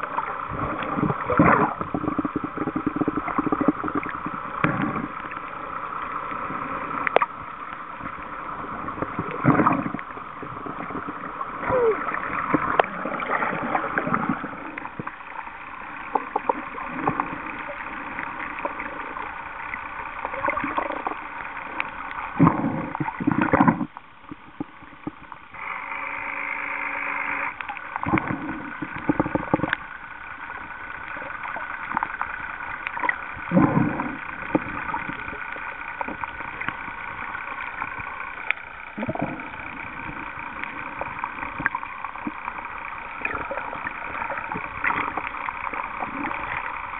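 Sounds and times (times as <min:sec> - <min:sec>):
water splashing surges: 0:00.0 - 0:23.9
water sloshing and gurgling: 0:00.0 - 0:26.2, 0:27.1 - 0:46.9
low hum: 0:00.0 - 0:46.9.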